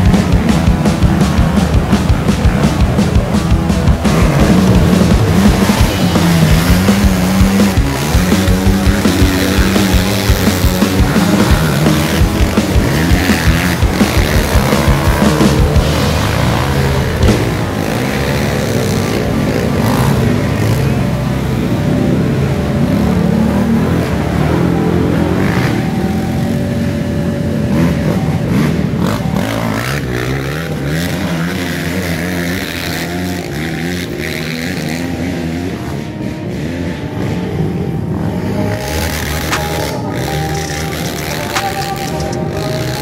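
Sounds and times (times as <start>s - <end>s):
quad engines revving: 0.0s - 43.0s.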